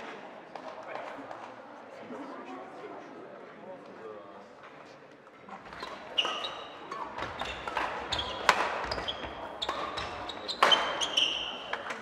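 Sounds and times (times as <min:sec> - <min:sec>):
shoes squeaking on court floor: 0:05.4 - 0:12.0
rackets striking shuttlecock: 0:05.6 - 0:12.0.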